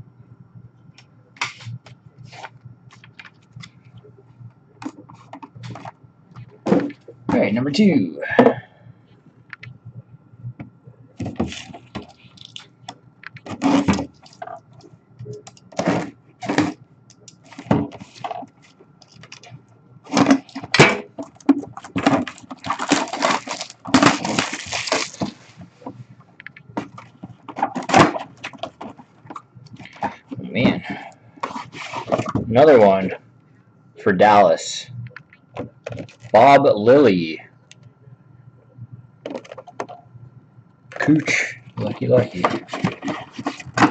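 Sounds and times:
plastic wrap crackling and tearing: 0:21.2 - 0:25.5.

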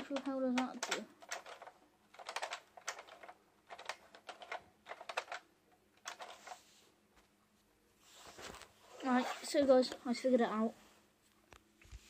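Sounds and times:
plastic clicks and clacks: 0:00.0 - 0:06.6.

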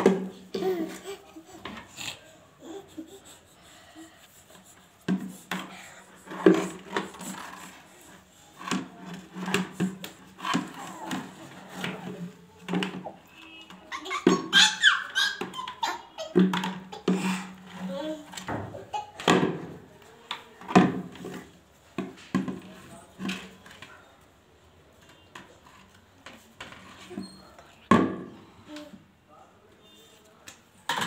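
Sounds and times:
plastic bucket scraping on concrete stairs: 0:05.0 - 0:13.2.

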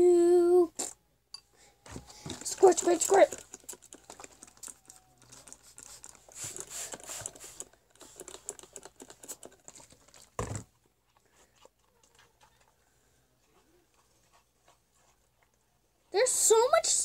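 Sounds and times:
spray bottle squirting: 0:05.5 - 0:08.7.

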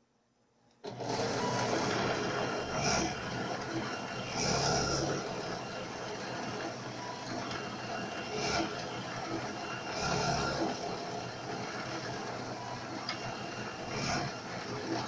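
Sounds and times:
drill press drilling into wood: 0:00.8 - 0:05.6, 0:08.1 - 0:15.0.

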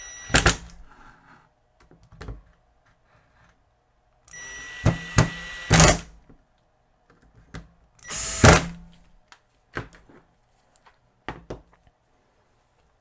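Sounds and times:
cordless drill driving screw: 0:04.3 - 0:06.1, 0:08.0 - 0:08.7.

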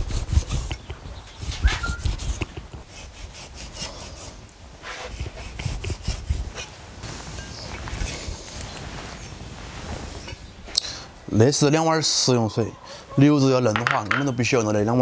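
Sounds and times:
blade rasping through meat: 0:00.0 - 0:06.7.

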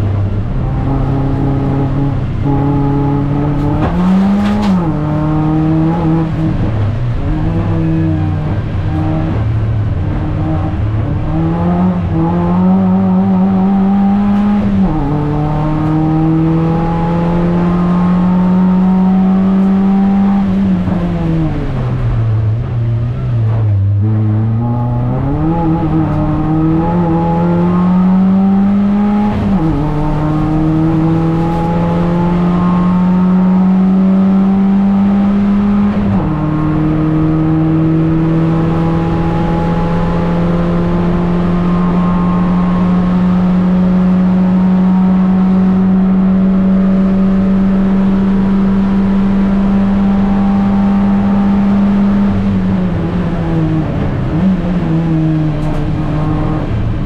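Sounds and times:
race car engine revving: 0:00.0 - 0:57.0.

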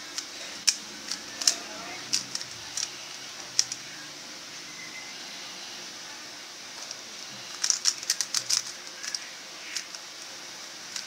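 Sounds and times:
steady hiss: 0:00.0 - 0:11.0
puzzle cube plastic clicks: 0:00.1 - 0:02.9, 0:03.5 - 0:03.8, 0:06.8 - 0:10.3.

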